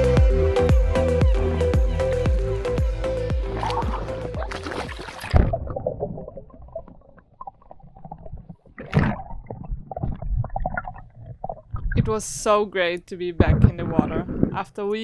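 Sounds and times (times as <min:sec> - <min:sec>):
water splashing: 0:03.3 - 0:12.3
rush of water: 0:03.6 - 0:06.7
underwater gurgling and bubbling: 0:03.6 - 0:12.0.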